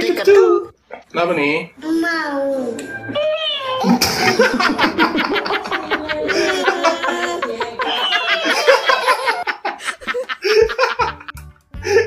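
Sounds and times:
man laughing hard: 3.8s - 12.0s.

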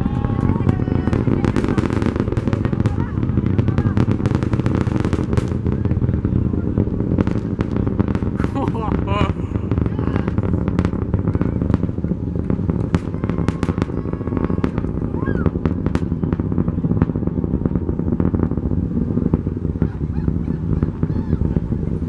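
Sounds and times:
crackles and pops: 0.0s - 22.0s
rocket engine rumble: 0.0s - 22.0s.

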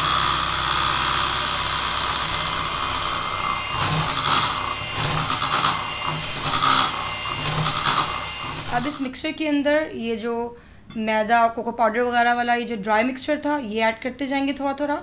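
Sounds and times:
electric hand mixer whining: 0.0s - 9.2s
beaters rattling in bowl: 3.6s - 9.1s.

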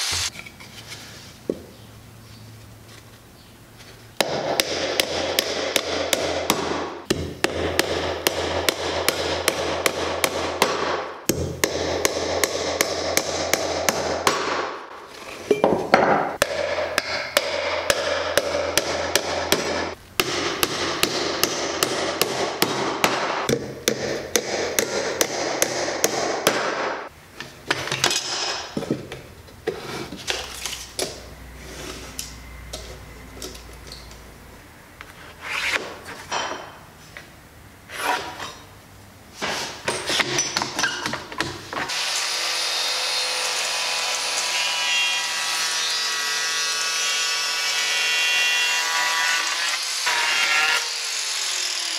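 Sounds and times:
knocks and handling: 14.9s - 16.5s, 27.4s - 34.3s
hammer driving nails into wood: 15.7s - 27.0s.

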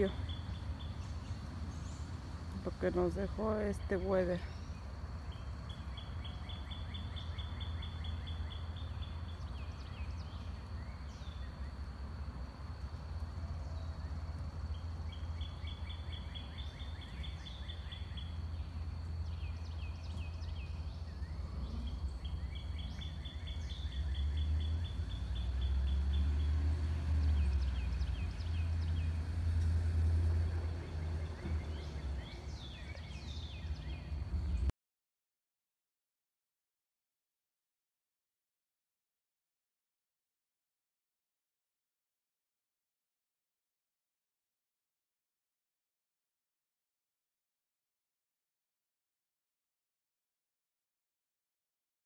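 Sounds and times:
steady low rumble: 0.0s - 25.4s
songbirds trilling: 0.0s - 34.7s.

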